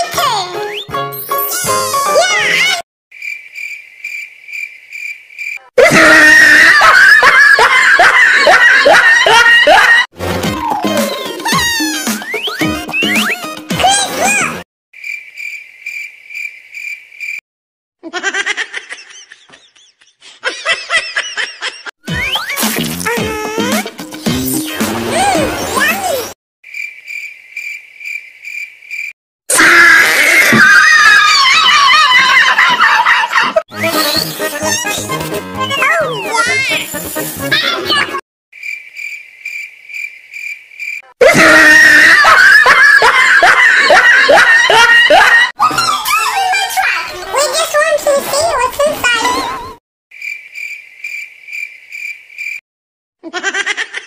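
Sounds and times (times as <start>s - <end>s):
high squeaky voice effect: 0.0s - 2.8s, 10.6s - 14.6s, 22.1s - 23.9s, 24.5s - 26.4s, 33.7s - 38.2s, 45.6s - 49.8s
cricket chirping: 3.1s - 5.7s, 15.0s - 17.4s, 26.7s - 29.1s, 38.6s - 41.0s, 50.2s - 52.6s.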